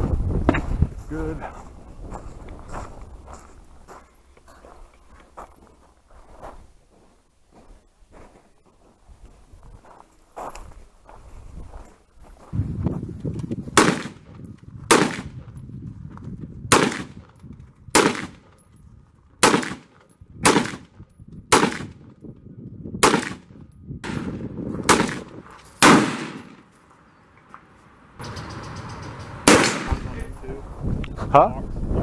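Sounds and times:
rifle shots: 13.8s - 15.5s, 16.7s - 17.2s, 17.9s - 18.5s, 19.4s - 20.9s, 21.5s - 22.0s, 23.0s - 26.7s, 29.4s - 30.2s.

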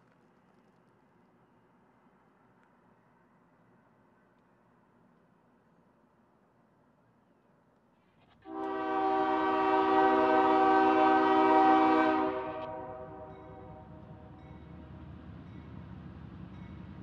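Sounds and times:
locomotive horn blast: 8.5s - 14.0s
locomotive engine and train running: 8.5s - 17.0s.

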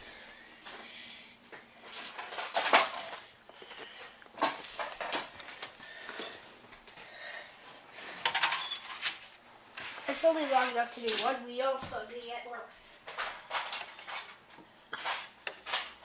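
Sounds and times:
plastic pieces clacking: 1.9s - 3.8s, 13.1s - 14.4s, 15.0s - 16.0s.

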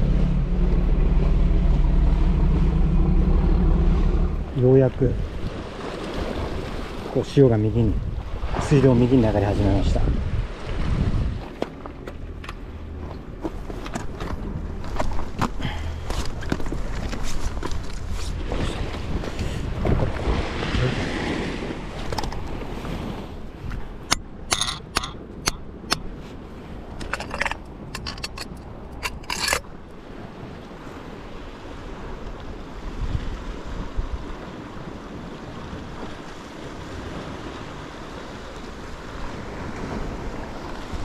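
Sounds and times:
wind on microphone: 0.0s - 12.3s, 13.0s - 41.0s
sea washing against rocks: 0.0s - 41.0s
metal clinks and knocks on rock: 24.1s - 26.1s, 27.0s - 29.7s.

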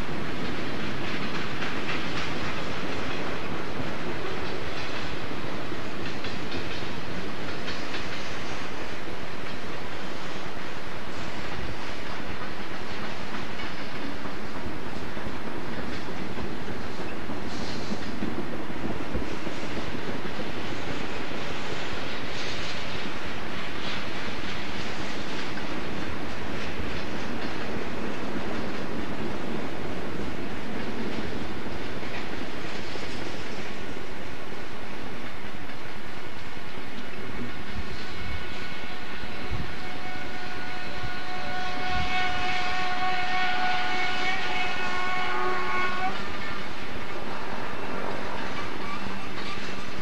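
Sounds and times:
wheels clicking over rail joints: 0.0s - 8.8s
steel wheels rumbling on rail: 0.0s - 50.0s.

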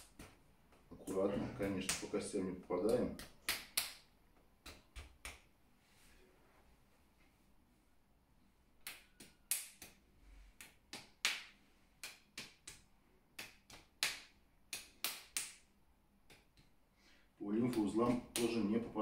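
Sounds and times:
massage stick tapping on body: 2.8s - 5.5s.

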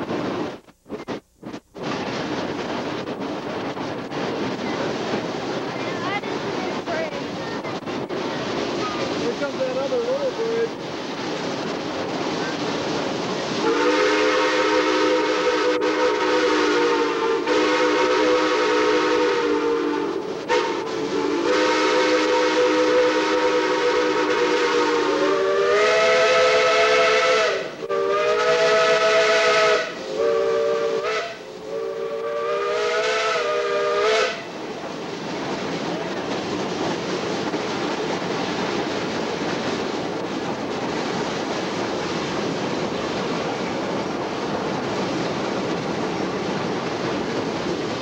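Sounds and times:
steam locomotive whistle blasts: 13.6s - 34.5s.

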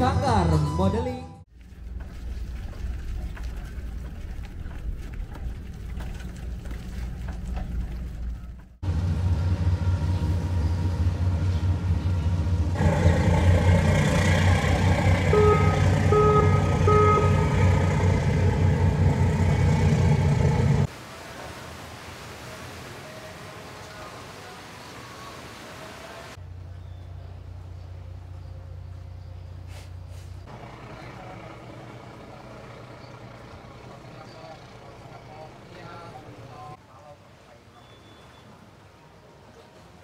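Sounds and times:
ferry engines running: 0.0s - 21.2s, 22.5s - 36.8s
ferry horn toots: 8.9s - 20.9s.

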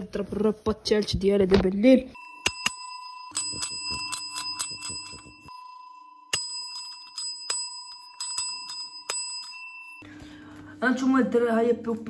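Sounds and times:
desk service bell dings: 2.2s - 10.1s.

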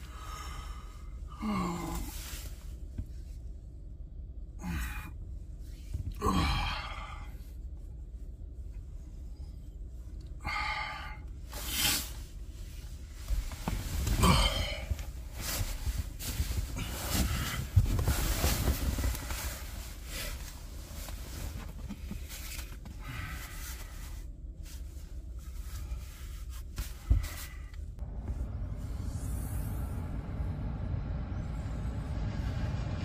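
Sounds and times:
man groaning: 1.3s - 2.2s, 6.1s - 7.3s
sleeping bag rustling: 11.6s - 27.7s.

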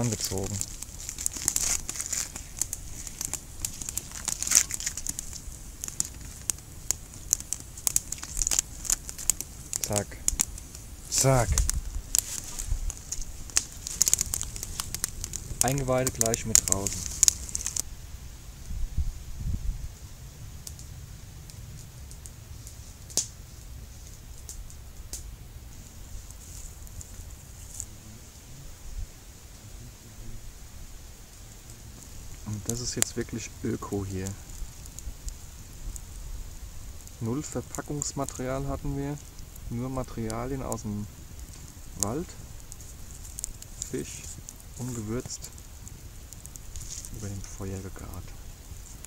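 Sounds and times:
fish skin crinkling and crackling: 0.0s - 17.8s, 32.0s - 49.0s.

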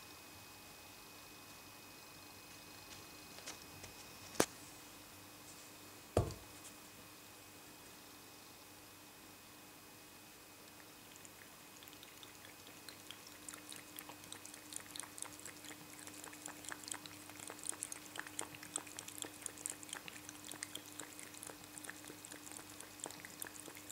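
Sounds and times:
cat lapping water: 10.7s - 23.9s.

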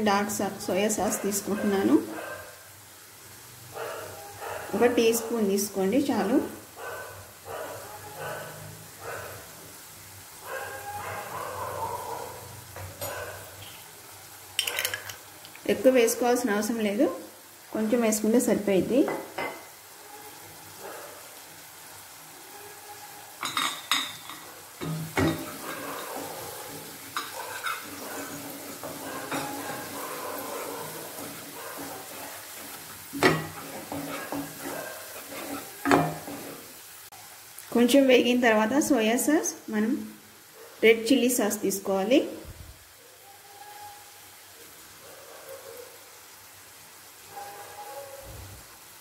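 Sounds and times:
vegetables sizzling in a frying pan: 0.0s - 49.0s
wooden spatula stirring and scraping: 24.2s - 36.9s.

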